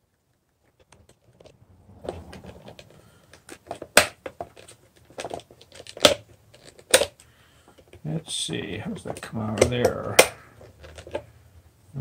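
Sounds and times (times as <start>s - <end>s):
handling noise: 0.0s - 12.0s.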